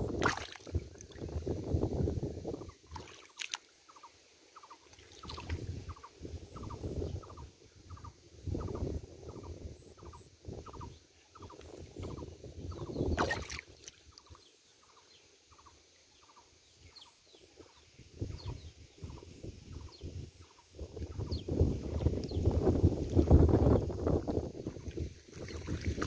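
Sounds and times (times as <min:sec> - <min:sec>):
splashing in shallow water: 0:00.1 - 0:01.4, 0:02.8 - 0:04.0, 0:04.8 - 0:05.6, 0:13.2 - 0:14.2, 0:24.9 - 0:26.0.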